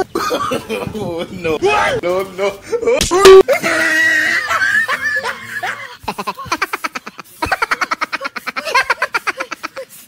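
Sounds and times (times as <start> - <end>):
rapid laughter: 3.5 - 10.0.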